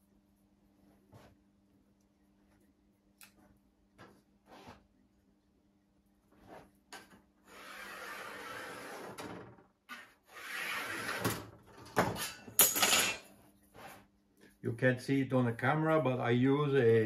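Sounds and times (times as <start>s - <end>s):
sheet metal scraping: 7.4s - 11.5s.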